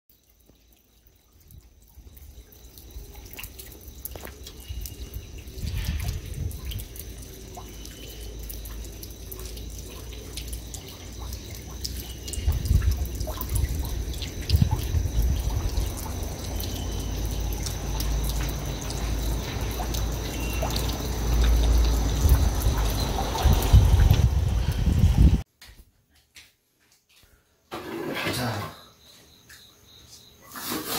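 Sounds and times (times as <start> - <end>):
rainwater dripping: 0.1 - 25.5
wind rumble on microphone: 4.8 - 7.0, 12.3 - 16.4, 21.7 - 25.4.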